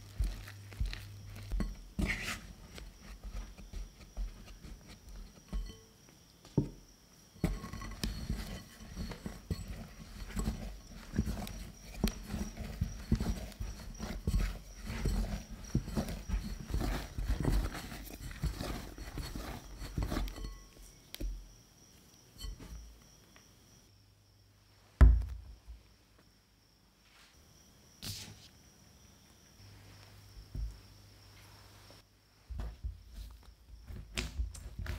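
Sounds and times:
hands kneading dough: 0.0 - 5.7, 7.4 - 21.5, 31.7 - 34.9
spatula scraping in glass bowl: 0.2 - 3.7, 7.4 - 21.0.

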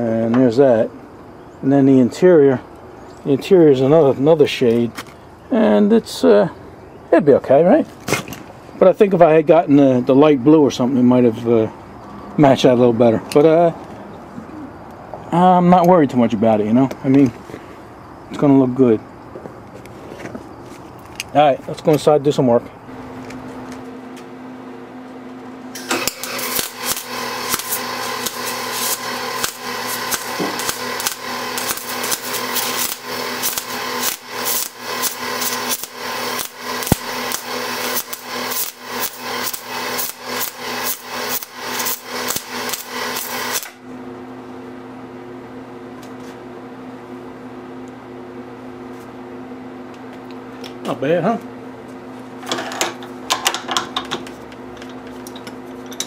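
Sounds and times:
electrical hum: 0.0 - 56.0
welder arc crackling: 25.8 - 43.8.

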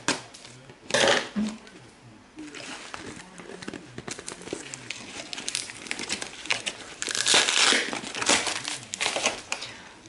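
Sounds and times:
cardboard and tape tearing: 2.5 - 9.6.

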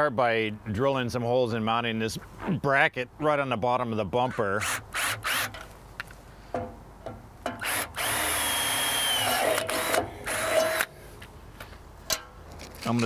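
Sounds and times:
cordless drill boring into metal: 4.6 - 5.6, 7.6 - 10.9.

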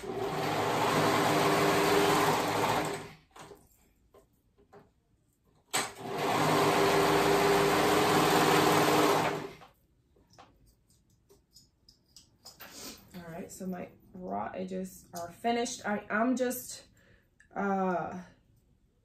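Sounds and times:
serger sewing machine running: 0.0 - 3.2, 5.8 - 9.6.

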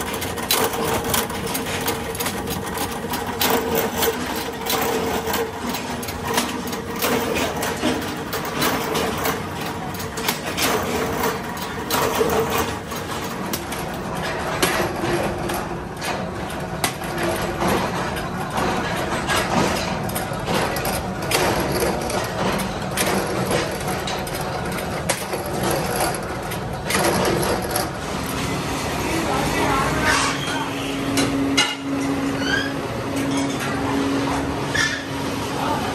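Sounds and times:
metal clanks and knocks: 0.0 - 28.0
machine motor hum: 0.0 - 30.0.

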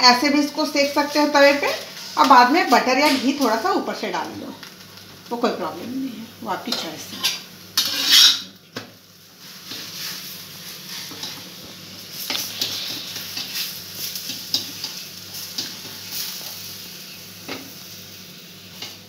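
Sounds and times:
flatbread sizzling in fat: 0.0 - 19.0
spatula scraping and tapping: 12.3 - 15.0.

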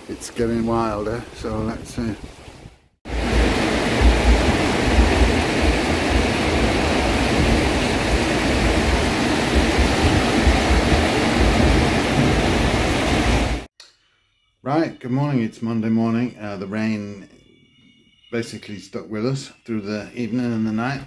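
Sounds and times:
wind buffeting microphone: 0.9 - 13.7
heavy rain: 3.1 - 13.7.

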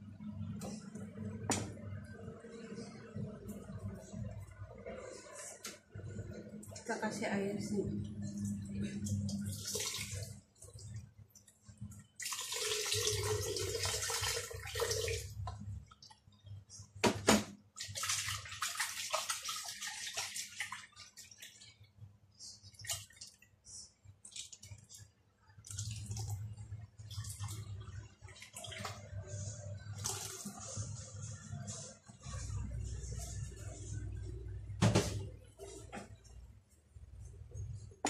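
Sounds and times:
liquid pouring and splashing: 9.1 - 16.2, 17.7 - 30.8
dripping liquid: 17.8 - 29.2.

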